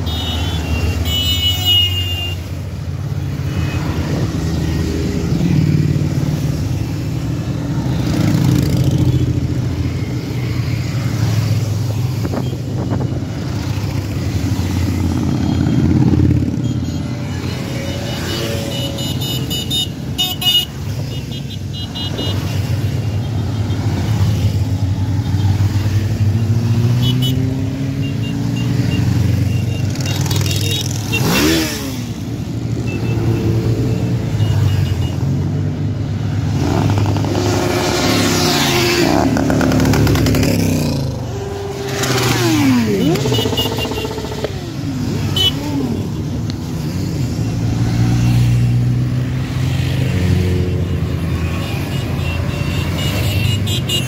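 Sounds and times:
motorcycles riding past: 0:00.0 - 0:54.0
motorcycle revving hard: 0:24.0 - 0:32.4, 0:36.4 - 0:51.5.

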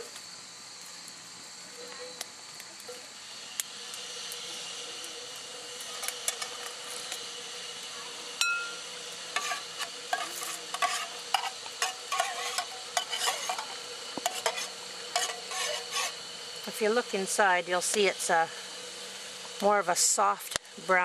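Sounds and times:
metal spoon clinking in metal cup: 0:08.4 - 0:08.8.

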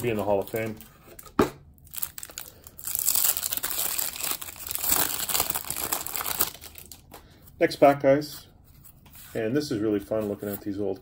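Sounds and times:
cellophane crinkling and tearing: 0:00.0 - 0:07.2.

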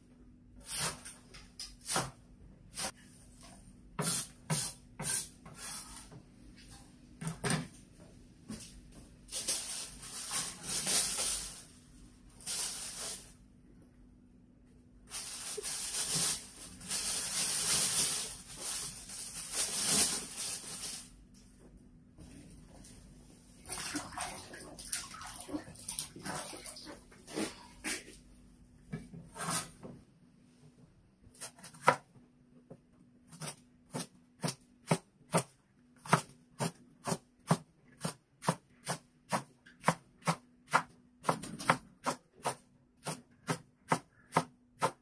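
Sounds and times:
plastic bag rustling: 0:09.3 - 0:13.4, 0:15.1 - 0:21.3.

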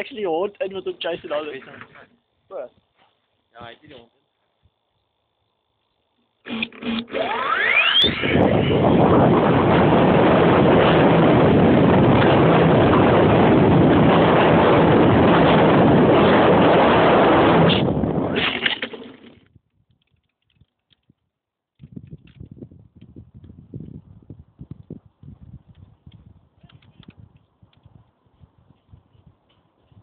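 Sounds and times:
model aeroplane motor and propeller: 0:06.4 - 0:13.4.

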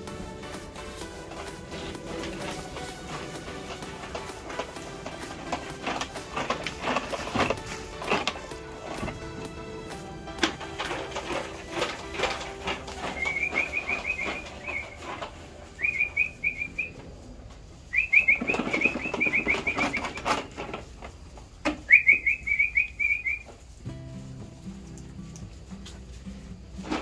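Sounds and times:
knocks and clicks: 0:00.0 - 0:16.7
bird chirping rapidly: 0:13.2 - 0:15.1, 0:15.8 - 0:17.0, 0:17.9 - 0:20.3, 0:21.9 - 0:23.5.

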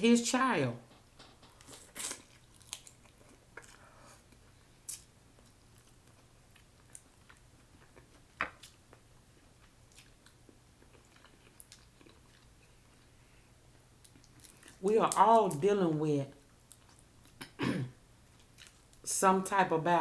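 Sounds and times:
quiet chewing: 0:00.9 - 0:14.8, 0:16.3 - 0:17.6.

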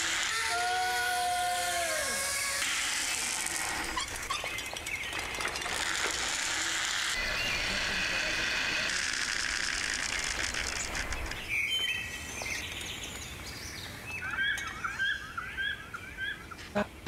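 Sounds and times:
zipline trolley whirring on cable: 0:00.0 - 0:11.5
songbird chirping: 0:11.0 - 0:17.0.

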